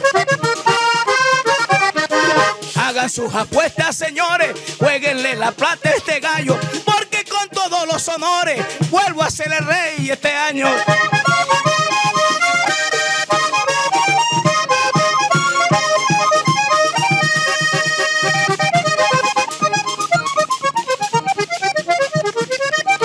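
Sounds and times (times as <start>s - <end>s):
hand drum strokes: 0.0s - 7.3s, 8.6s - 23.0s
button accordion melody: 0.0s - 23.0s
scraper percussion scraping: 0.0s - 23.0s.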